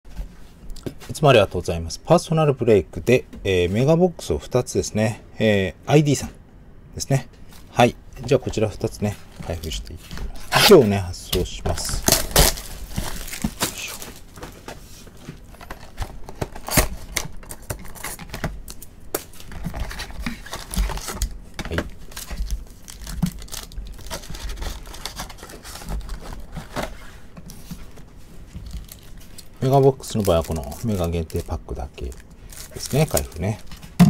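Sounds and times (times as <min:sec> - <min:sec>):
cardboard and foil packs rustling: 0:08.3 - 0:34.0
plastic wrap crinkling and tearing: 0:10.5 - 0:14.4, 0:15.6 - 0:21.3, 0:22.0 - 0:27.1, 0:28.6 - 0:34.0.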